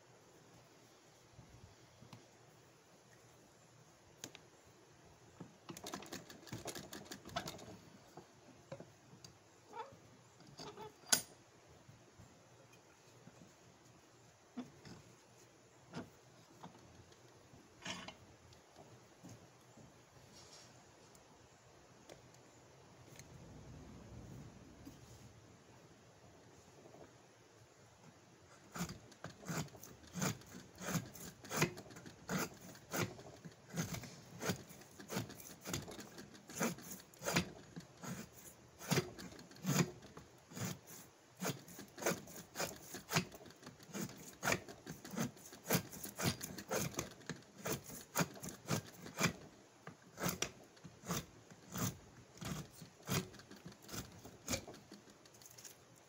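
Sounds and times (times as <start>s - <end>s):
blade shaving wood: 28.5s - 55.8s.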